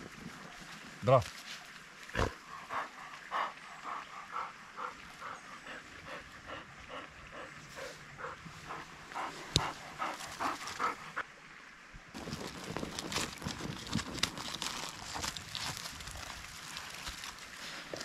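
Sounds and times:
dog panting rapidly: 2.6s - 11.2s.

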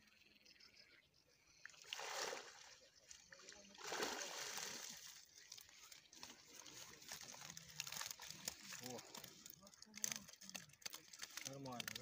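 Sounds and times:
water pouring out of a net: 1.8s - 2.8s, 3.7s - 12.0s.

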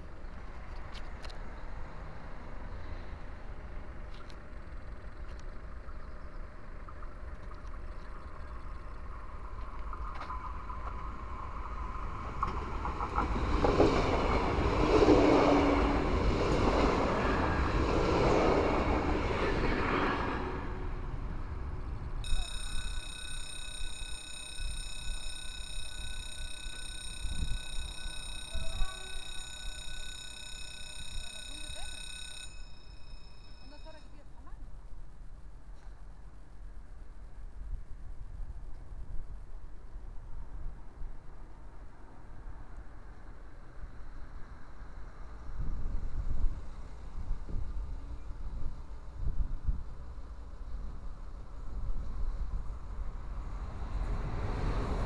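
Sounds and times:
train wheels rumbling on rails: 3.2s - 32.7s
level crossing warning bell: 22.2s - 34.4s.

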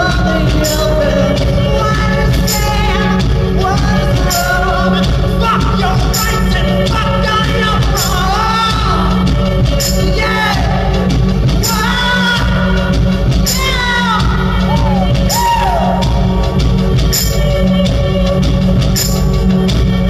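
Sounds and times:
man singing wordless notes: 0.0s - 16.3s
deep bass drone: 0.0s - 20.0s.

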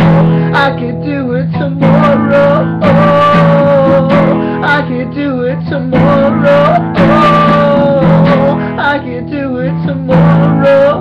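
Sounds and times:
acoustic guitar strumming: 0.0s - 11.0s
man singing: 0.0s - 11.0s.

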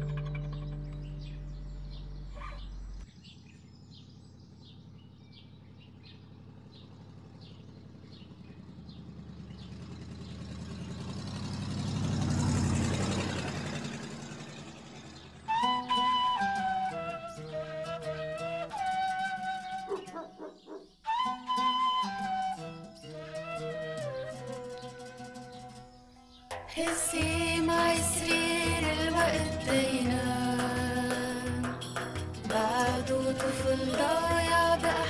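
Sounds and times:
nay flute melody: 15.5s - 26.0s, 26.8s - 35.0s.

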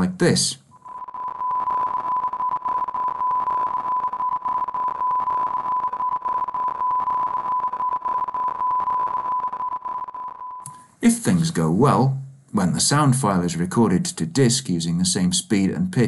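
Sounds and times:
flickering noisy buzz: 0.8s - 10.8s
steady tone: 0.8s - 11.3s.

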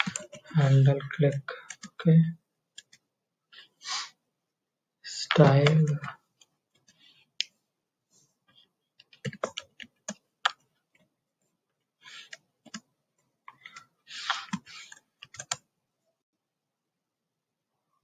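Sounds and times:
keyboard keystrokes: 15.2s - 15.6s.

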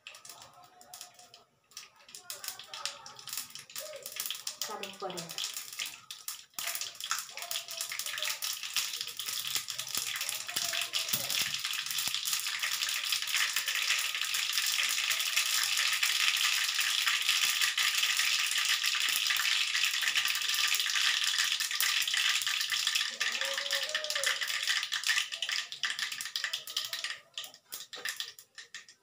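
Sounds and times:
mustard seeds crackling in hot oil: 0.0s - 29.0s.

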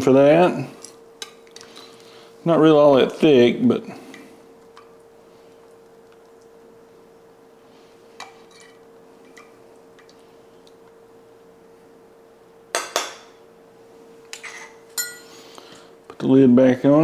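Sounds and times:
faint steady hum: 0.0s - 17.0s
metal spoon clinking dishes: 14.3s - 15.3s.

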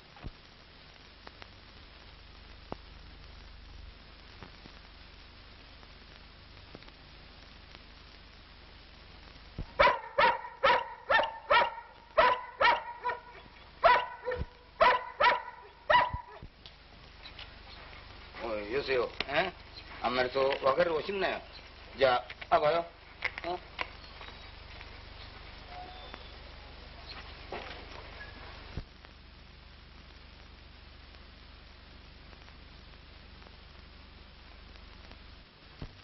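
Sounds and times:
old film soundtrack hiss: 0.0s - 36.0s
large dog barking rapidly: 9.8s - 16.4s.

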